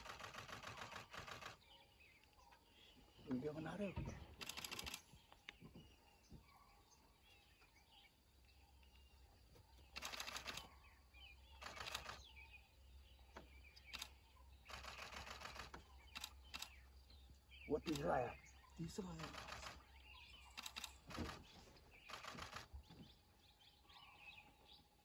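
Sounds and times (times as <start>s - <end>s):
camera shutters clicking: 0.0s - 1.6s, 4.4s - 5.1s, 10.0s - 10.7s, 11.6s - 12.3s, 19.2s - 19.8s, 20.5s - 22.7s.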